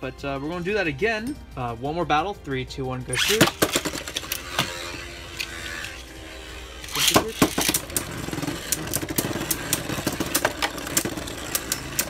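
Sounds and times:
spinning tops whirring: 3.1 - 12.0
launcher ripping: 3.2 - 6.1.

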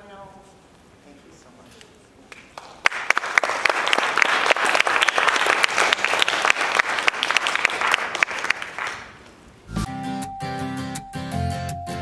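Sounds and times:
audience applauding: 2.4 - 9.2.

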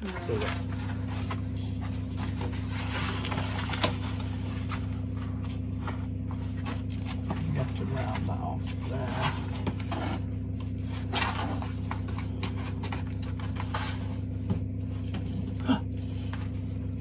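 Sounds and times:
plastic film crinkling: 0.0 - 13.7
low mechanical hum: 0.0 - 17.0.

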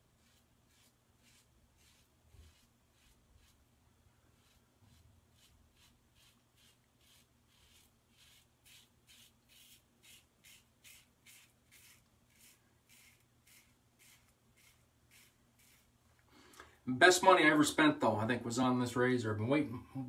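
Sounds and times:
razor scraping stubble: 0.2 - 3.6, 4.3 - 15.9.

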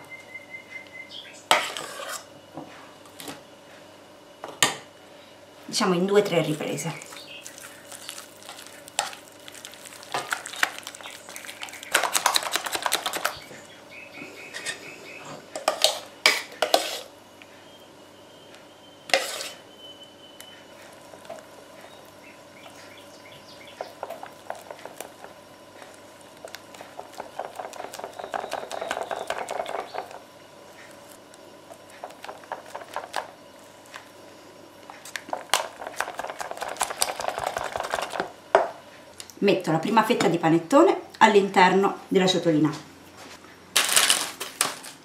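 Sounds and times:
utensil stirring in bowl: 6.5 - 13.5, 19.1 - 19.6, 23.8 - 34.1, 34.9 - 38.3.

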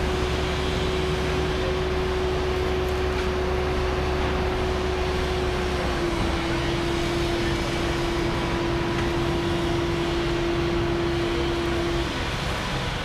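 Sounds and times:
concrete pump truck droning: 0.0 - 13.0.

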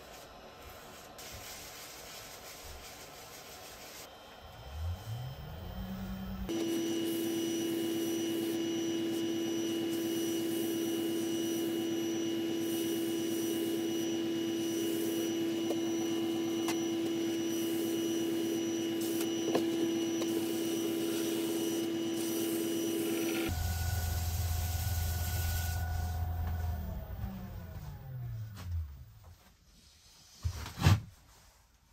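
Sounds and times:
wood lathe humming: 13.7 - 28.9.

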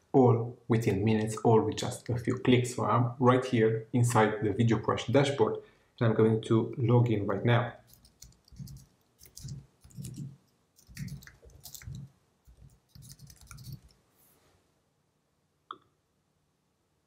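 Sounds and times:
computer keyboard typing: 7.9 - 14.0.

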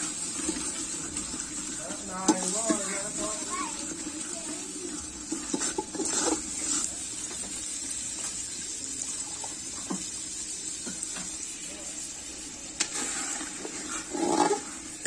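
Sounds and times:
curry bubbling and sizzling: 0.0 - 15.0
ladle scraping metal pot: 0.2 - 4.1, 4.9 - 6.9, 12.8 - 15.0.

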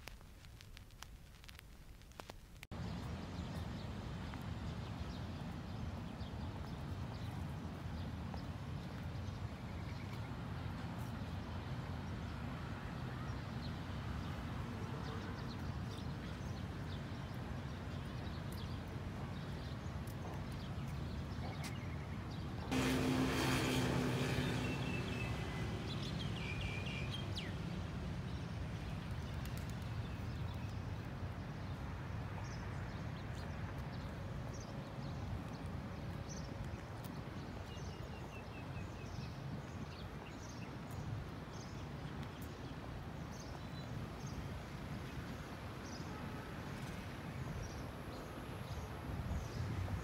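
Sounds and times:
distant traffic rumble: 2.5 - 50.0
loud noise with low hum passing: 22.2 - 39.8
small birds chirping: 24.2 - 27.7.

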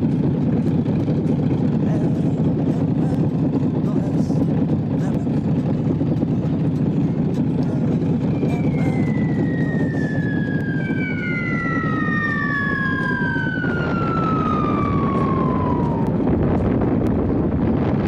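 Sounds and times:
steady low rumbling: 0.0 - 18.0
long falling whistling tones: 8.2 - 16.4.

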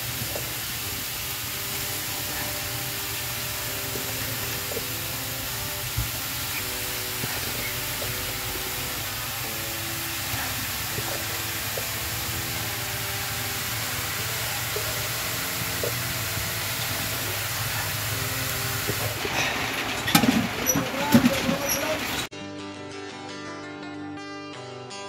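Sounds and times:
fish sizzling on hot salt: 0.0 - 19.4.

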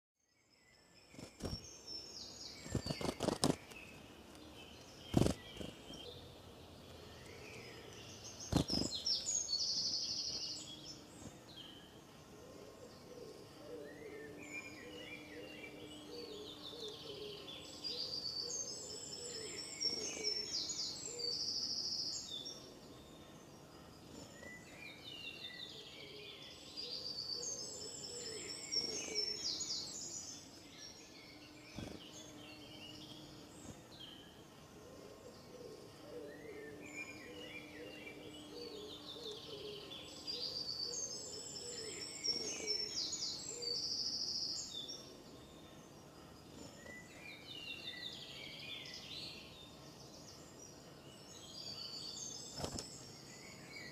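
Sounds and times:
songbirds chirping: 0.2 - 53.9.

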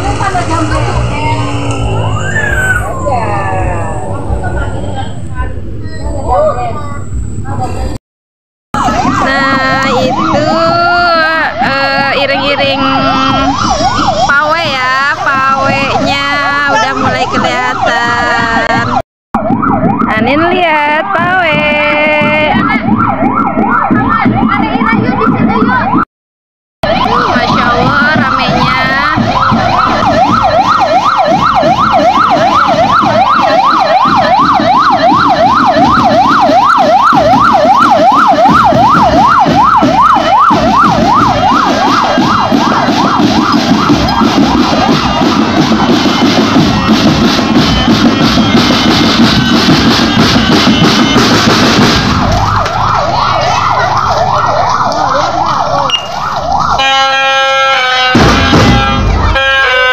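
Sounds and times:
police siren yelping: 0.0 - 5.3, 8.8 - 26.0, 26.8 - 59.9
snare and bass drums beating: 8.8 - 26.0, 26.8 - 57.1, 58.0 - 59.9.

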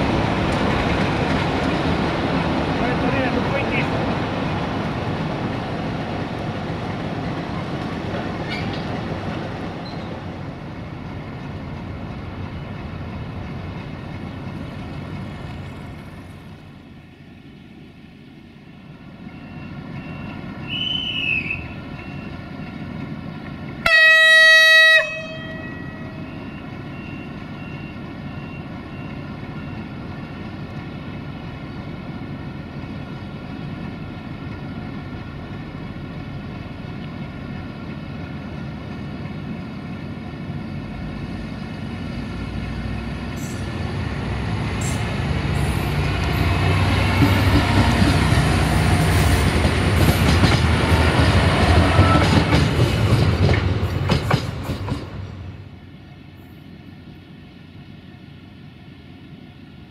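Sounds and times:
train rumble: 0.0 - 59.9
train horn blast: 23.8 - 26.4
diesel engine hum: 25.0 - 52.0.

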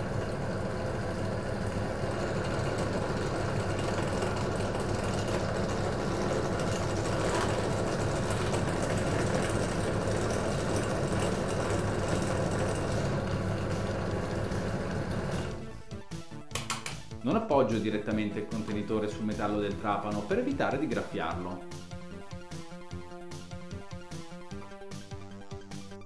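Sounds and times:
drill press drilling plastic: 0.0 - 15.7.

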